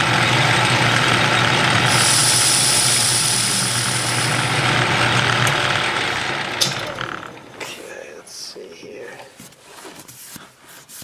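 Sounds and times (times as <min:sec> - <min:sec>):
lathe motor drone: 0:00.0 - 0:07.8
high cutting hiss: 0:01.9 - 0:04.4.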